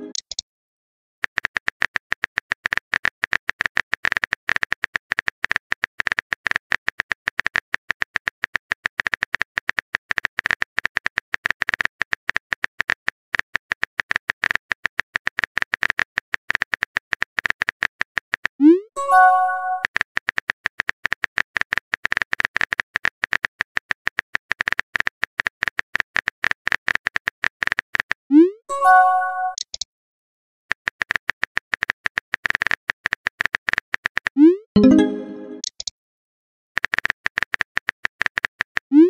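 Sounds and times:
phone keyboard typing clicks: 0.0 - 0.4, 30.7 - 35.9.

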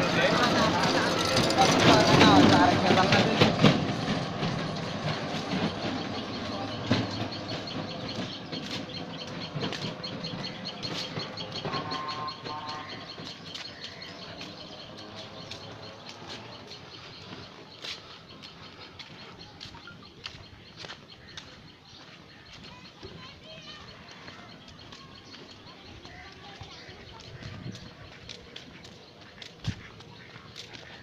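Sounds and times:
auto-rickshaw rattling over bricks: 0.0 - 17.2.

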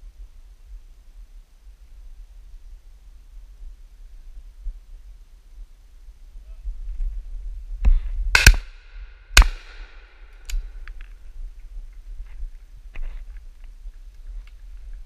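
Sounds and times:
shotgun shots echoing: 8.4 - 10.8.

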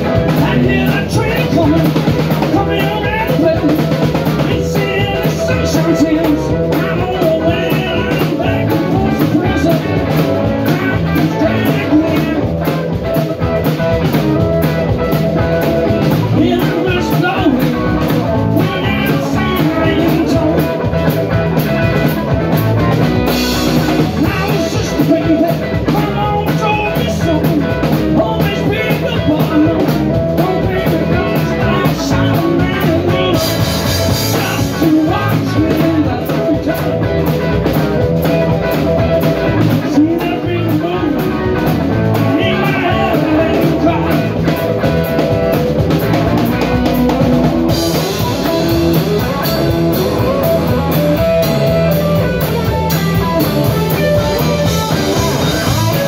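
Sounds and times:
live rock band playing: 0.0 - 56.0.

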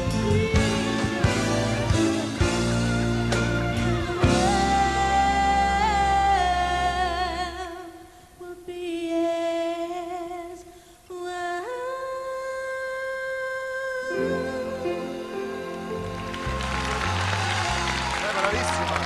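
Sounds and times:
woman singing with vibrato: 0.0 - 2.5, 3.7 - 16.2
band playing low accompaniment: 0.0 - 7.4, 14.1 - 19.0.

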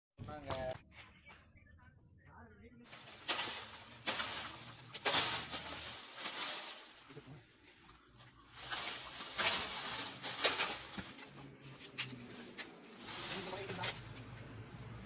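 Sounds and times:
dry palm fronds rustling: 2.9 - 14.5.

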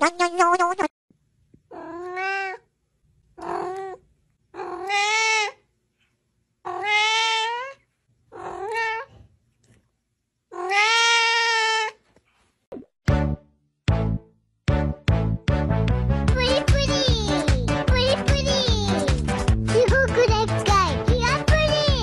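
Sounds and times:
cat meowing: 1.7 - 2.7, 3.4 - 4.0, 4.6 - 5.6, 6.6 - 9.2, 10.5 - 12.0.

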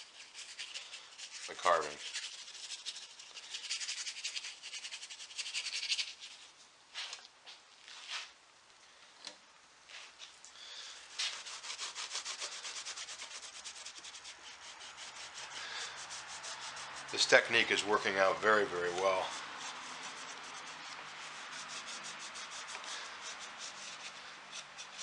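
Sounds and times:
brush scrubbing wood: 0.0 - 6.4, 11.1 - 25.0
rag rubbing wood: 11.1 - 25.0.

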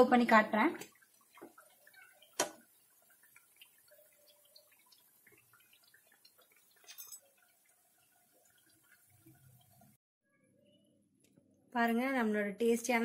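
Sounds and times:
hot oil crackling: 0.0 - 10.0
metal skimmer clatter: 6.8 - 7.4.

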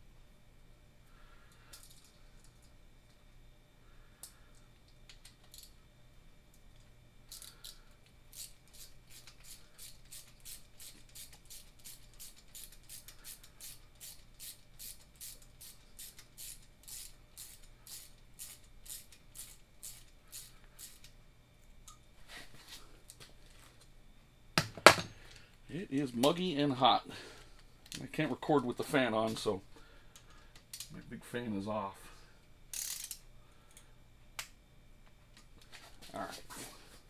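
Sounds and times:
ratchet wrench clicking: 7.3 - 21.1, 32.7 - 33.8.

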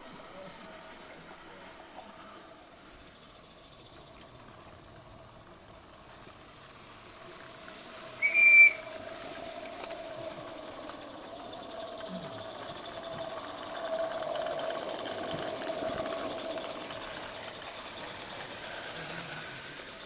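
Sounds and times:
steam whistle toot: 8.2 - 8.9.

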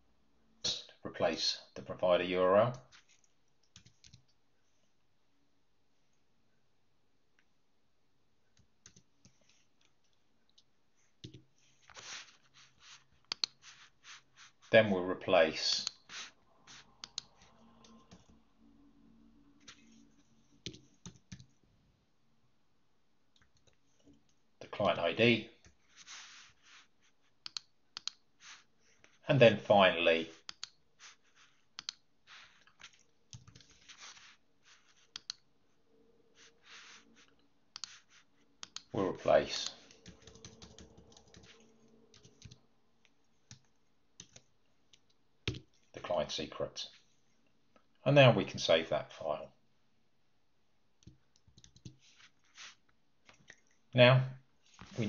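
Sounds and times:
soft brushing noises: 2.8 - 4.0, 10.9 - 18.4, 19.4 - 21.6, 25.7 - 27.4, 28.3 - 29.3, 29.9 - 42.4, 52.0 - 53.9, 54.6 - 55.0
soft rustle: 2.8 - 5.0, 9.2 - 14.9, 19.5 - 21.6, 25.7 - 27.4, 30.3 - 38.6, 51.9 - 53.9, 54.6 - 55.0
keyboard and mouse clicks: 13.3 - 13.6, 17.0 - 18.4, 27.4 - 28.2, 30.4 - 30.8, 31.8 - 32.0, 35.1 - 35.4, 37.7 - 38.0, 38.6 - 38.9, 51.0 - 52.0
computer keys clicking: 40.0 - 41.6, 43.5 - 44.5, 51.0 - 52.0.

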